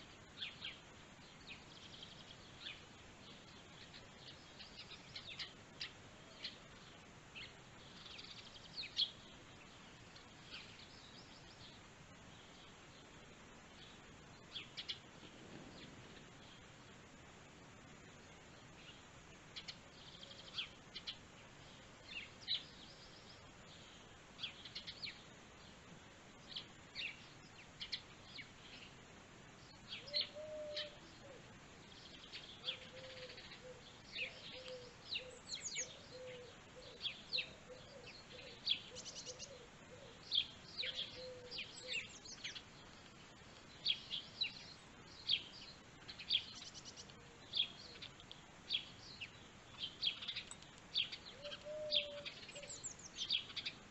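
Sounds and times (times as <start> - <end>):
small birds chirping: 0.0 - 53.9
lower repeated bird call: 29.8 - 31.5, 32.2 - 42.6, 51.0 - 53.8.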